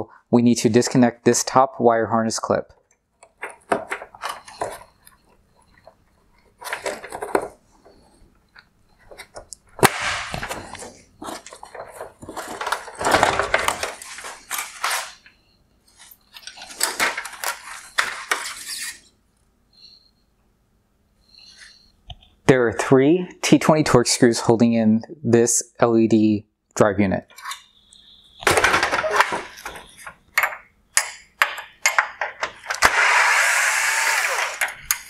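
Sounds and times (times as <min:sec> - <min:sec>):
plastic scraping and clattering: 0:03.2 - 0:08.2, 0:10.2 - 0:15.3, 0:15.9 - 0:19.1, 0:28.4 - 0:30.7.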